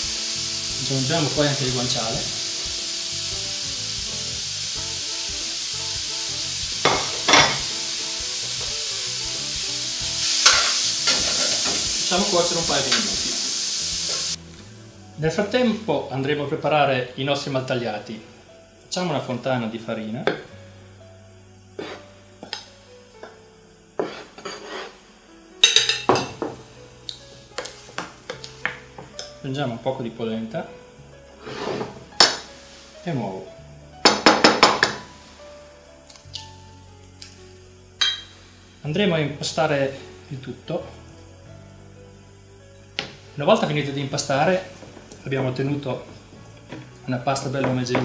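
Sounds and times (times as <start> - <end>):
food sizzling in a pan: 0.0 - 48.0
soft background music: 0.0 - 48.0
metal spoon clinking on dishes: 25.6 - 26.4, 38.0 - 38.3.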